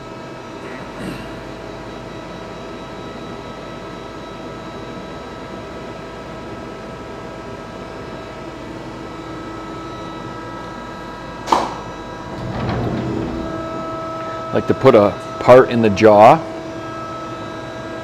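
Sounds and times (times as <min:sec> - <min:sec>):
lathe machine hum: 0:09.7 - 0:17.8
metal door clack: 0:11.6 - 0:14.7
steady tones: 0:11.8 - 0:15.6.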